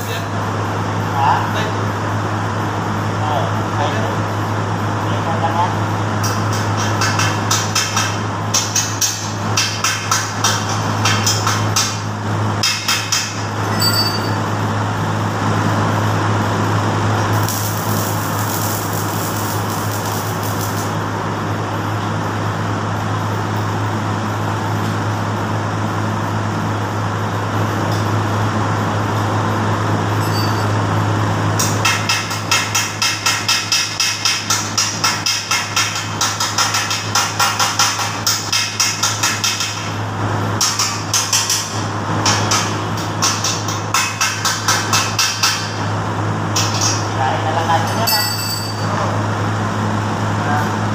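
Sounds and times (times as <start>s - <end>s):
steady hum: 0.0s - 50.9s
welding arc crackling: 6.0s - 25.0s, 30.6s - 47.9s.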